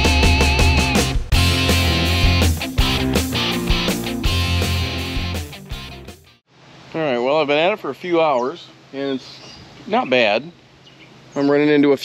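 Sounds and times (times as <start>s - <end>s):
rock music with guitar and drums: 0.0s - 6.4s.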